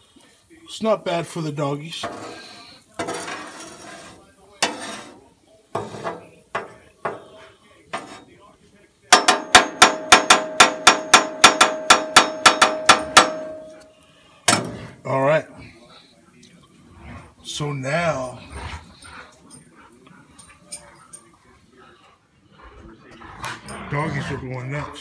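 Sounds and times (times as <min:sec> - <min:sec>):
metal spatula scraping griddle: 0:01.9 - 0:08.4
sharp metal taps: 0:09.1 - 0:13.9
steady metallic ring: 0:09.2 - 0:13.9.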